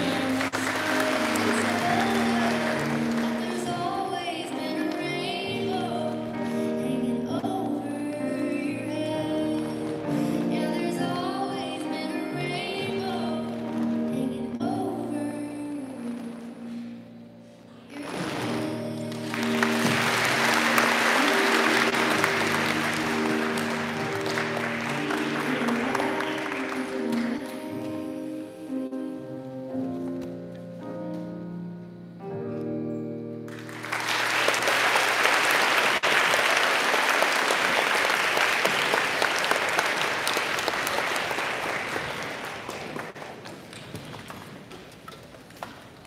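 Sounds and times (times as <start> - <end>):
audience applause: 0.0 - 4.1, 18.0 - 27.4, 33.5 - 43.9
orchestral music: 0.0 - 7.3, 18.1 - 28.7.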